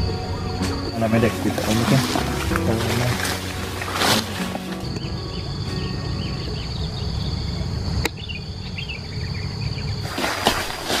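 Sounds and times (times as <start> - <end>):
high-pitched insect drone: 0.0 - 10.0
faint bird chirps: 4.8 - 10.0.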